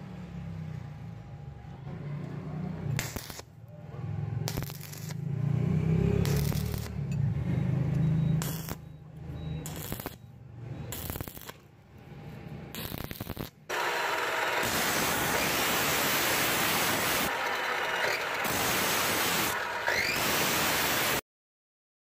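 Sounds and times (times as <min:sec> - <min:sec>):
arc welding crackle: 0:02.9 - 0:03.5, 0:04.4 - 0:05.3, 0:06.1 - 0:07.0, 0:08.4 - 0:08.8, 0:09.6 - 0:10.2, 0:10.9 - 0:11.6, 0:12.7 - 0:21.2
bench grinder grinding steel: 0:13.7 - 0:21.2.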